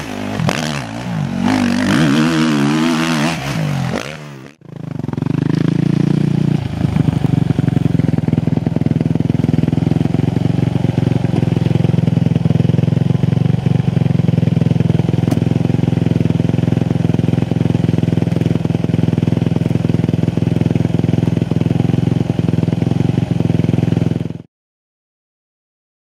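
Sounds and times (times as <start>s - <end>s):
motorbike engine idling: 4.6s - 24.5s.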